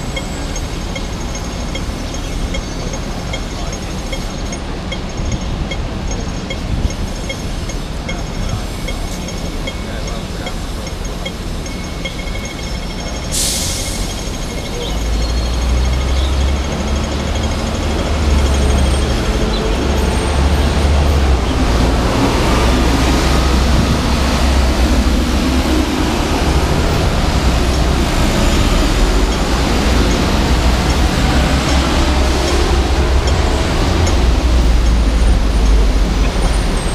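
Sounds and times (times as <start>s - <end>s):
city street traffic: 0.0s - 36.9s
crossing signal ticking rapidly: 0.0s - 36.9s
heavy low rumble: 14.0s - 36.9s.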